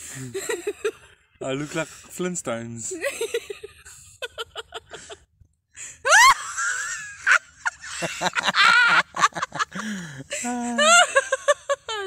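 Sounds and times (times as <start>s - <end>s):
people laughing: 0.2s - 1.1s, 3.0s - 5.3s, 6.1s - 12.0s.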